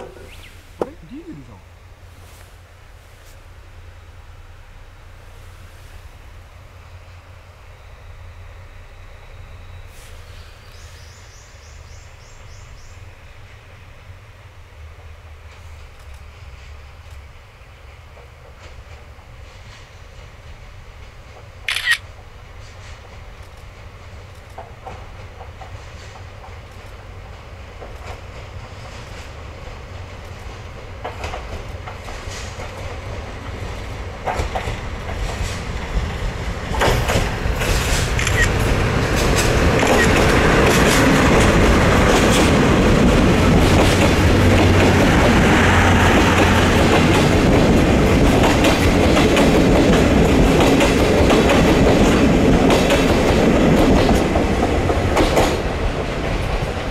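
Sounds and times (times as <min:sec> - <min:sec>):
diesel locomotive engine: 0:00.0 - 0:56.9
train rolling noise: 0:00.0 - 0:56.9
train wheels clickety-clack on rails: 0:14.7 - 0:56.9
sharp clicks: 0:21.7 - 0:22.0, 0:38.1 - 0:38.6, 0:39.8 - 0:40.3.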